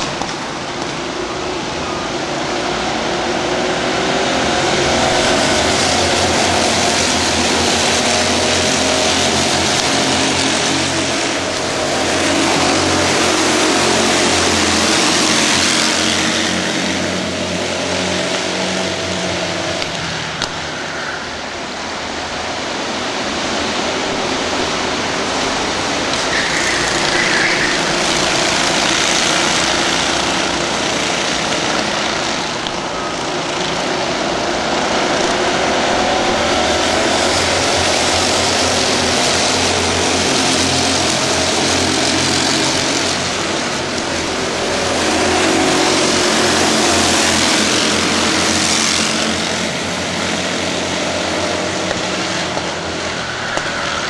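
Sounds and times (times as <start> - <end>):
racing kart engines passing: 0.0 - 54.0.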